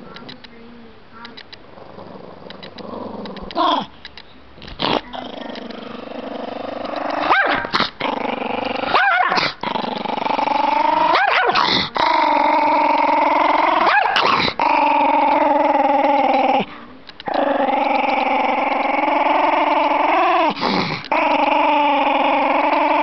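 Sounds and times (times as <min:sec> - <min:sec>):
small dog growling: 0:01.7 - 0:04.0, 0:04.6 - 0:23.0
sharp snapping dog barks: 0:07.3 - 0:07.9, 0:11.2 - 0:11.7.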